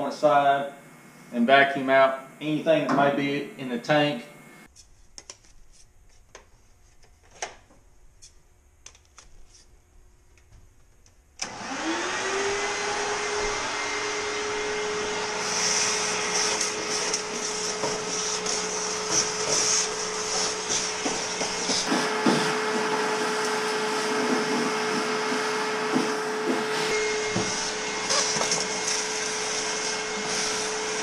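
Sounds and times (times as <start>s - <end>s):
vacuum cleaner motor whine: 11.4s - 31.0s
vacuum suction hiss with debris: 15.3s - 31.0s.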